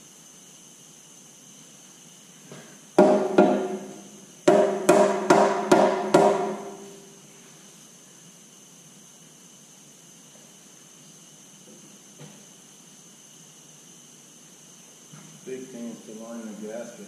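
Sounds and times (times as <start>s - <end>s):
hammer knocking on metal: 3.0s - 3.9s, 4.5s - 6.8s.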